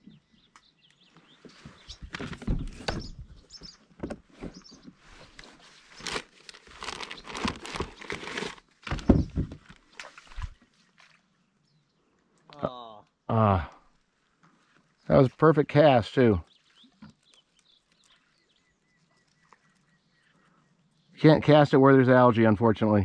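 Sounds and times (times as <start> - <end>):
rustling and scraping on plastic kayak: 1.0 - 11.6, 13.9 - 20.8.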